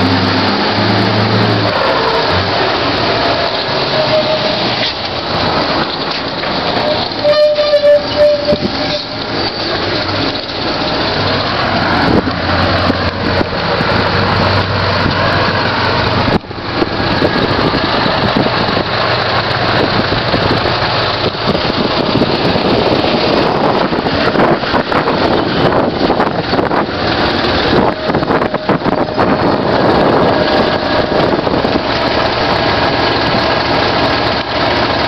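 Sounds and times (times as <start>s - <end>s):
diesel engine running: 0.0s - 35.0s
wind buffeting microphone: 10.2s - 34.2s.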